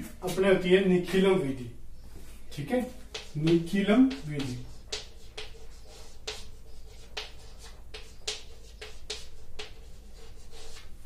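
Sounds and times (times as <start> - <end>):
chalk tapping and scraping on blackboard: 2.9 - 11.0.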